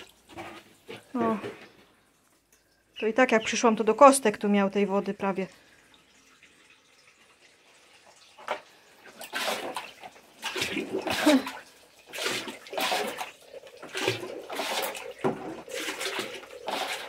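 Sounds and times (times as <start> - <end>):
water splashing into metal bucket: 6.3 - 17.0
dustpan scooping water off tiles: 9.0 - 17.0.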